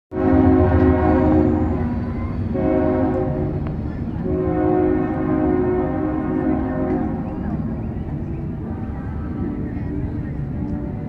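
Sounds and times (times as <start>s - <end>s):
train horn blasts: 0.1s - 7.5s.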